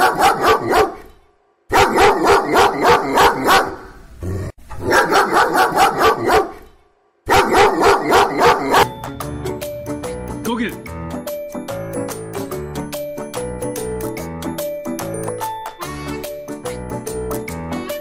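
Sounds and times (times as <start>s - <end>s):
dog barking fast: 0.0s - 1.1s, 1.7s - 3.9s, 4.8s - 6.6s, 7.3s - 8.9s.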